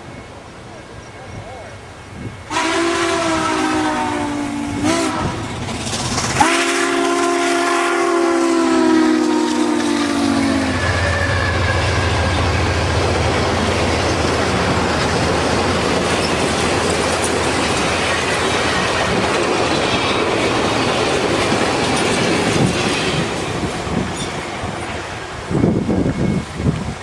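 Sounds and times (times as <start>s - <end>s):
steam locomotive chime whistle: 0.0s - 14.6s, 24.2s - 26.9s
train cars rumbling on rails: 0.0s - 27.0s.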